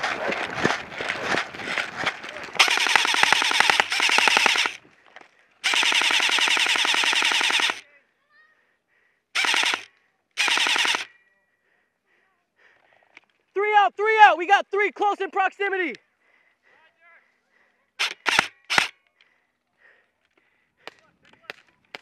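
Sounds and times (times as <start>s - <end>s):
airsoft rifle firing bursts: 0.0s - 4.9s, 5.6s - 7.8s, 9.4s - 11.1s, 18.0s - 19.0s
footsteps on loose ground: 0.0s - 5.5s.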